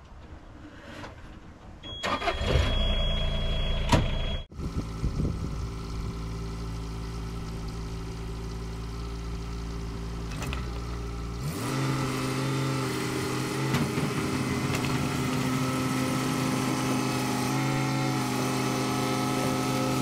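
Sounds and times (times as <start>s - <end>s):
steady high beep: 1.9s - 4.5s
diesel engine cranking and idling: 1.9s - 20.0s.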